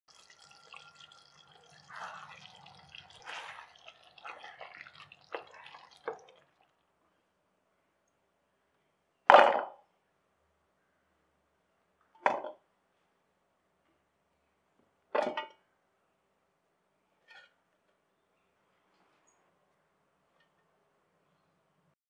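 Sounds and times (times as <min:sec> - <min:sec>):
spoon stirring: 0:00.1 - 0:06.6
curry bubbling in a pan: 0:00.1 - 0:06.9.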